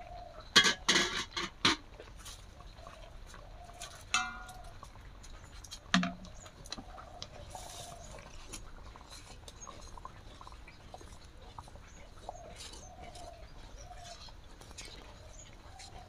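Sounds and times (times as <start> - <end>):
loud metal clank: 4.2 - 4.6
metal ladle scraping wok: 4.2 - 4.6.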